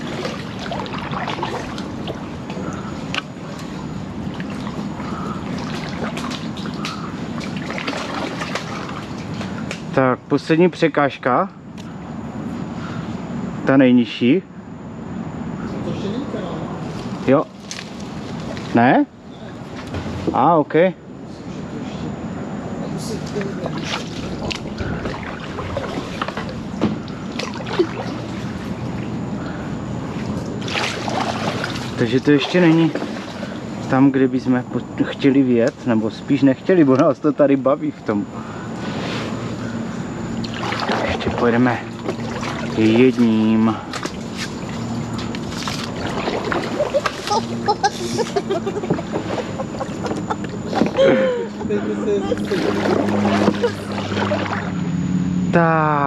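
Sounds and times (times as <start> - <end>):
paddle strokes through water: 0.0 - 9.6, 23.6 - 28.8, 30.1 - 33.6, 40.4 - 43.1, 43.9 - 48.2, 52.5 - 54.8.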